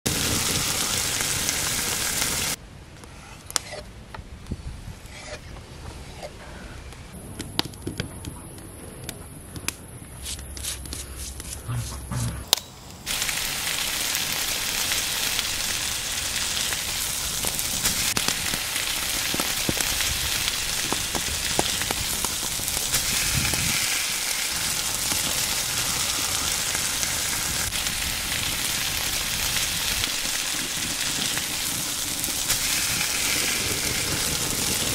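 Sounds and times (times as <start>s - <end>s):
food sizzling on stone grill: 0.1s - 2.6s, 13.0s - 34.9s
small pops and crackles: 17.4s - 26.8s.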